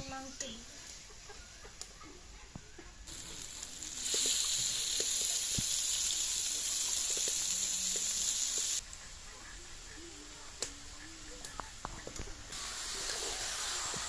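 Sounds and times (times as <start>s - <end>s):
chicken sizzling in hot oil: 3.0s - 14.0s.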